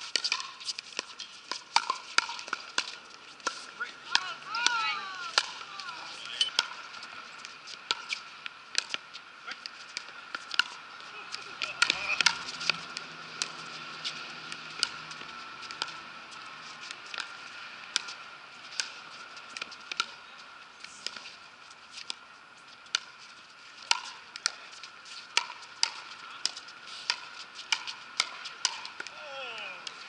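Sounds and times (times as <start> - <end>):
paddles hitting plastic ball: 0.1 - 6.8.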